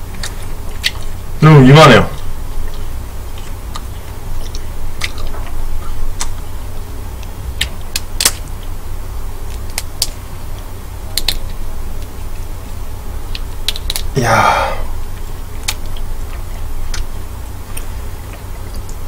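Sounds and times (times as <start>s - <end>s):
prawn shell cracking: 7.6s - 8.4s.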